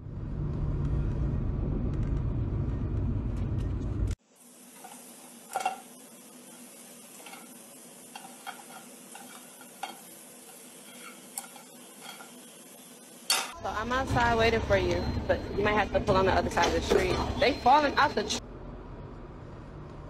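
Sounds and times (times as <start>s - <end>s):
food sizzling in oil: 4.2s - 13.6s.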